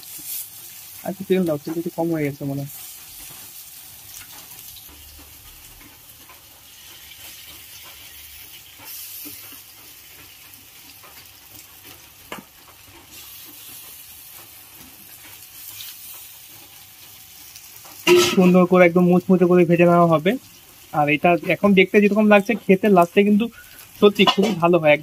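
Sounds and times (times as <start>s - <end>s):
fritters sizzling in hot oil: 0.0s - 25.0s.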